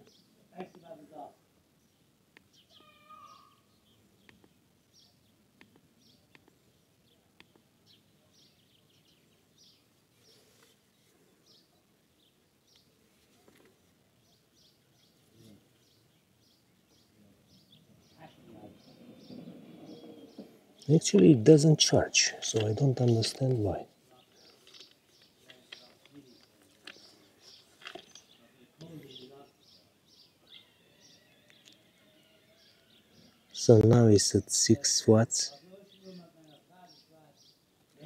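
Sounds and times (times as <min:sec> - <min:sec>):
small birds chirping: 0:00.0 - 0:38.0
soft rustle: 0:10.0 - 0:11.7, 0:12.7 - 0:14.2, 0:22.3 - 0:29.1.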